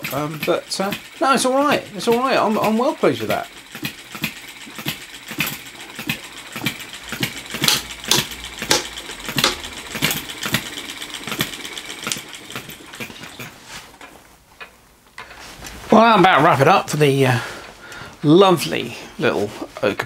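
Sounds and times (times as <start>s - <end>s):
model engine popping and clicking: 0.0s - 13.5s.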